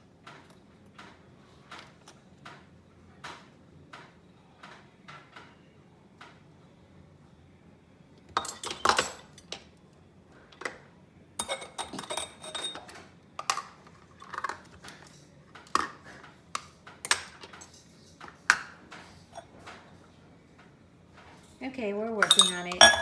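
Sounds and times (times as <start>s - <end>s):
bowl and metal pot clinking on stone: 11.4s - 13.6s, 22.2s - 23.0s.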